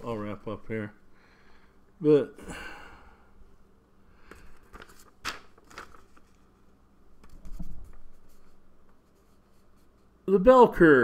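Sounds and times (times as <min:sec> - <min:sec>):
book pages rustling: 0:04.3 - 0:10.0.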